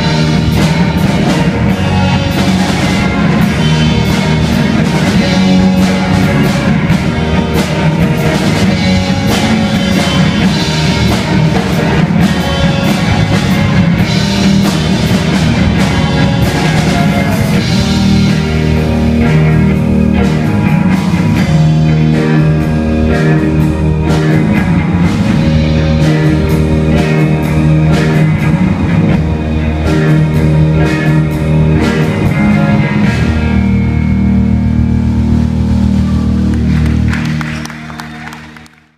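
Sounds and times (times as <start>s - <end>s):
drum kit: 0.0s - 38.7s
electric guitars: 0.0s - 38.8s
keyboard: 0.0s - 38.9s.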